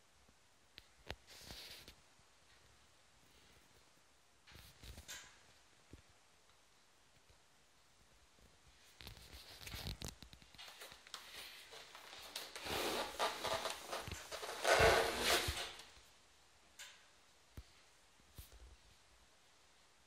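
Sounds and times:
cardboard box rustling and scraping: 12.2s - 15.8s.

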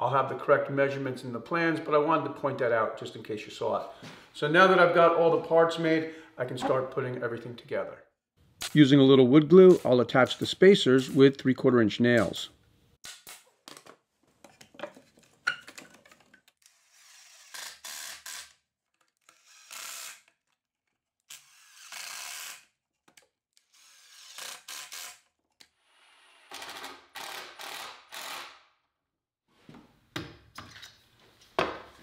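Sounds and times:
cordless drill driving screws: 19.2s - 20.3s, 21.3s - 22.7s, 23.6s - 28.5s.

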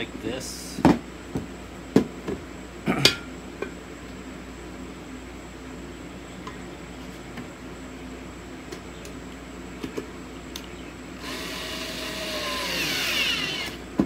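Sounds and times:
cordless drill driving a screw: 11.2s - 13.8s.

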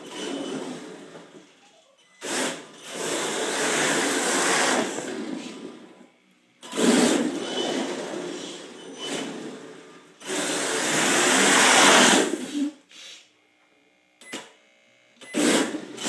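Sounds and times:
rc car motor whirring: 2.2s - 5.8s, 6.6s - 12.3s.

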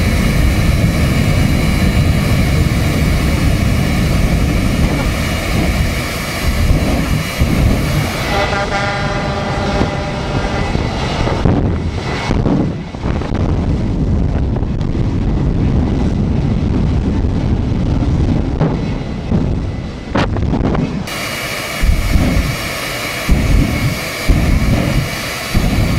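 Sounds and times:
jet engine roaring: 0.0s - 25.9s
whistling whine: 20.9s - 25.9s.

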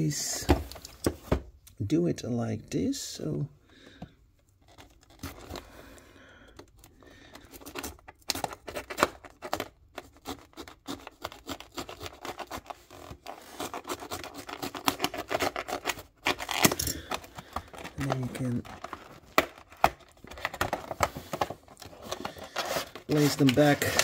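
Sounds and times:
knife scraping cardboard: 9.6s - 16.5s, 21.8s - 24.0s.

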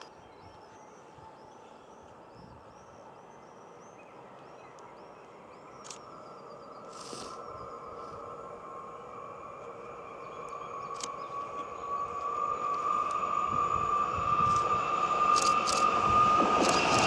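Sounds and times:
electric train hum: 0.0s - 17.0s
small bird chirping: 2.4s - 7.7s.

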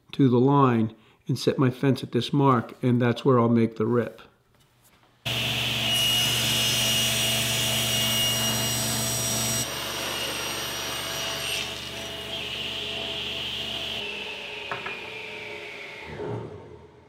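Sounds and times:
table saw ripping wood: 5.3s - 16.5s.

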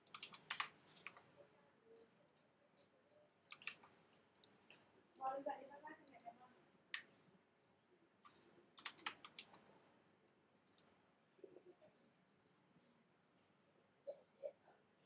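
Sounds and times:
computer input clicks: 0.0s - 1.2s, 3.5s - 4.6s, 8.2s - 9.6s, 10.6s - 10.9s.

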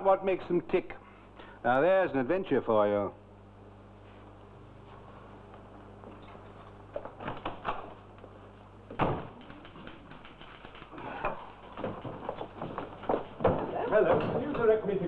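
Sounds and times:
footsteps on hard floor: 11.7s - 13.8s.

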